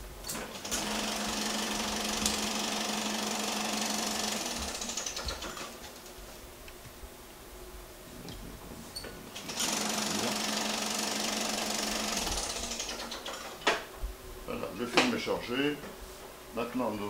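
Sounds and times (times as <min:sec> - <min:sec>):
film projector clattering: 0:00.3 - 0:06.1, 0:09.4 - 0:13.9.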